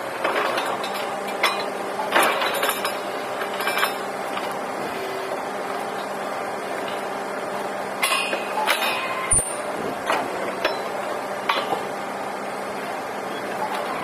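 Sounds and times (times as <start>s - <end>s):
mechanical hum: 0.0s - 14.0s
metallic clanks and knocks: 10.0s - 11.9s.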